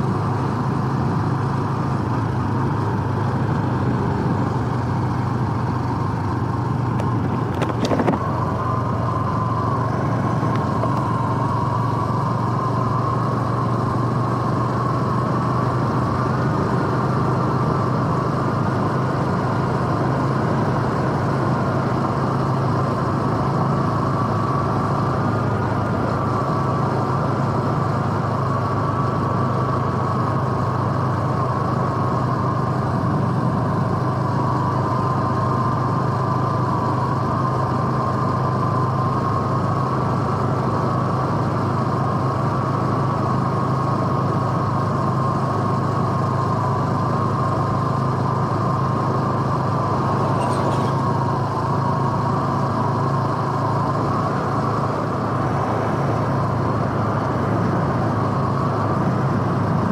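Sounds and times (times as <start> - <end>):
motorcycle engine running: 0.0 - 59.9
steady whine: 5.7 - 15.0, 47.0 - 59.8.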